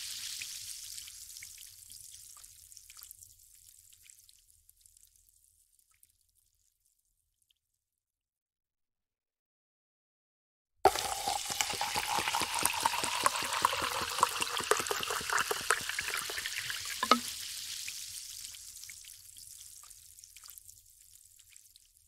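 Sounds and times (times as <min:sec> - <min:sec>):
liquid pouring over ice: 0:10.9 - 0:17.4
soda fizzing: 0:10.9 - 0:19.2
glass knock: 0:17.0 - 0:17.3.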